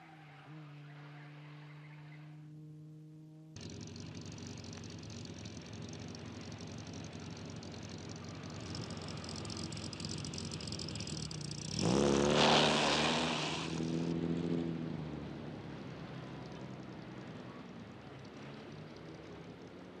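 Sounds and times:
sports car engine revving: 0:06.3 - 0:15.8.

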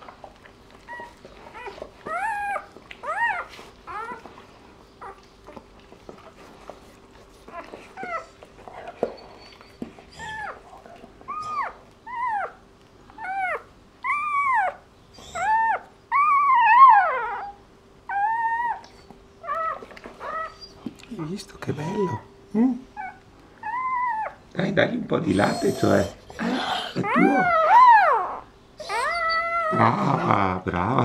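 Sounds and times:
faint steady hum: 0:00.0 - 0:31.0
puppy squealing: 0:00.9 - 0:04.3, 0:09.1 - 0:10.6, 0:11.3 - 0:12.6, 0:13.2 - 0:20.8, 0:21.6 - 0:22.3, 0:23.0 - 0:24.4, 0:25.2 - 0:30.4.

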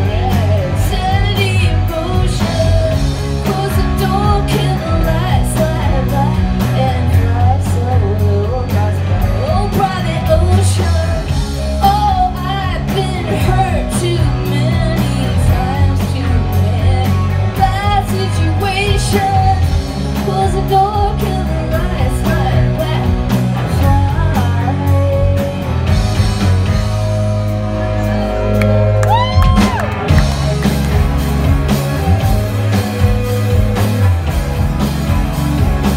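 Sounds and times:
woman singing: 0:00.0 - 0:26.0
live rock band playing: 0:00.0 - 0:35.9.

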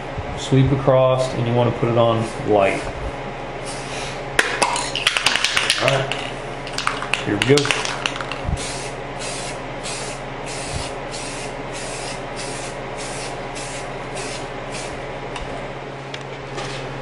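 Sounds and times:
spray paint can hissing: 0:07.6 - 0:15.0.

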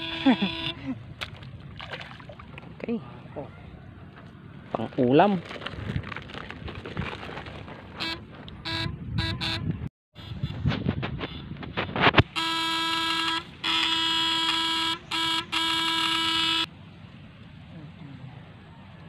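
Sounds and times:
electric shocker buzzing: 0:00.0 - 0:00.8, 0:12.3 - 0:16.7.

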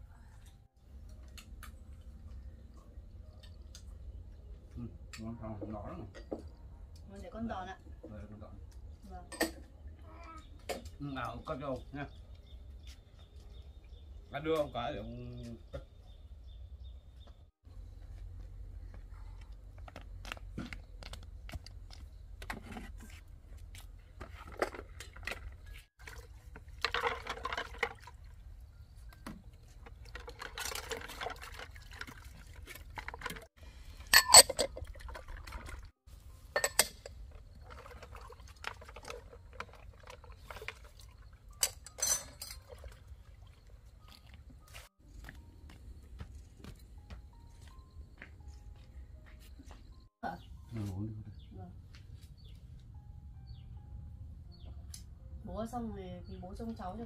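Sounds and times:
water sloshing in a basin: 0:24.2 - 0:44.7
knocks and clinks: 0:34.0 - 0:35.0, 0:36.5 - 0:37.8, 0:41.6 - 0:42.8.

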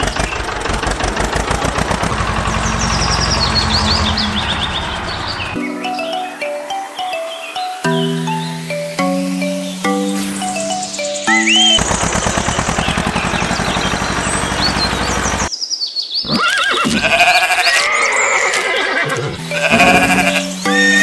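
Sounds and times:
background music: 0:05.6 - 0:11.8, 0:19.4 - 0:21.0
farm animal calls: 0:16.2 - 0:21.0.

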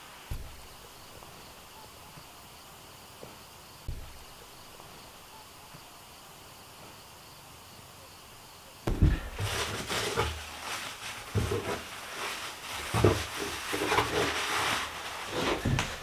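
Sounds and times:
paper crinkling and rustling: 0:09.1 - 0:16.0.

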